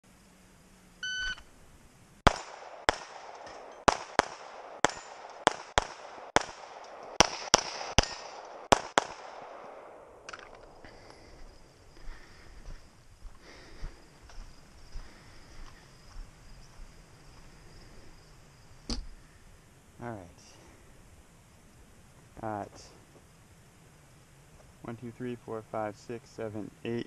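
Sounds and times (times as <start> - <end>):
short electronic beep: 1.0 - 1.5
handgun shots: 2.3 - 9.6.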